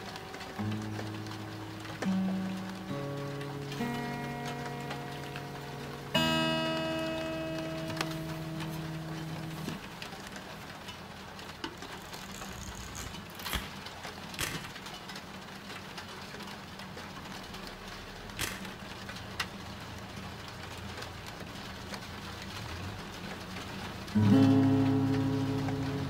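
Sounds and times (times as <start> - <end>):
sharp clicks: 11.6 - 15.0, 18.4 - 18.8.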